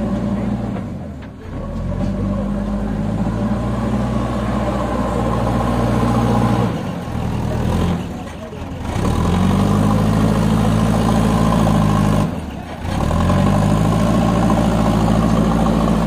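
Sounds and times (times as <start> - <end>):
diesel engine of backhoe running: 0.0 - 16.0.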